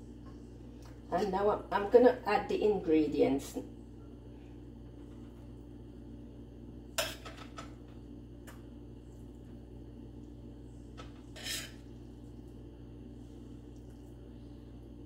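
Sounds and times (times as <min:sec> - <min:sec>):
spoon scraping a dish: 0:11.0 - 0:11.9.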